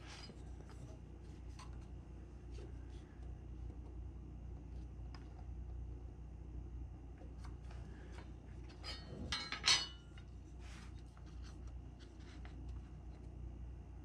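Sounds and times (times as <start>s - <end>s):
metal rib clinking on bench: 8.7s - 10.2s.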